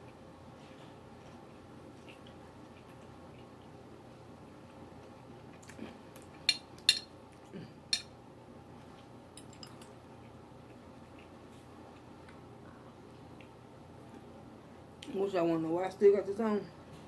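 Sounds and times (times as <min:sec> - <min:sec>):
fork clinking against glass dishes: 0:06.5 - 0:07.1.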